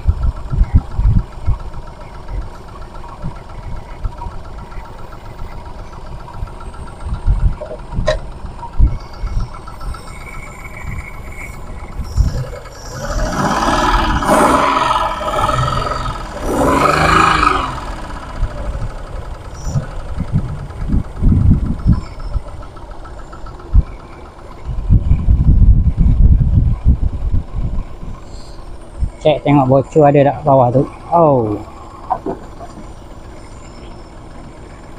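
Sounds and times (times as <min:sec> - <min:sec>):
small car engine idling: 0:00.0 - 0:34.9.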